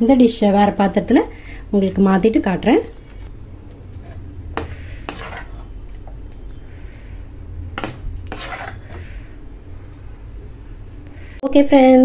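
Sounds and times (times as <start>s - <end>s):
low steady hum: 0.0s - 12.0s
metal ladle scraping pan: 3.9s - 6.8s, 7.8s - 10.0s.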